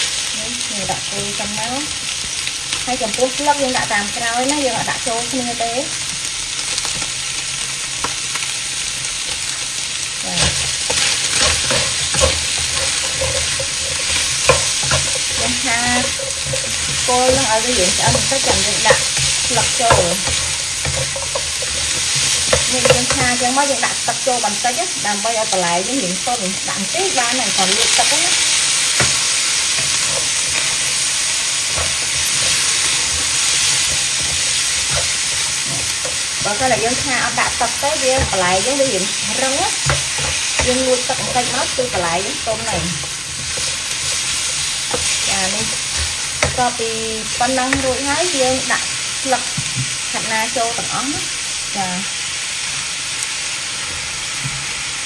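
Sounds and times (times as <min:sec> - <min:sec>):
food sizzling in a wok: 0:00.0 - 0:55.0
spatula scraping and knocking pan: 0:10.3 - 0:24.0, 0:27.2 - 0:51.3.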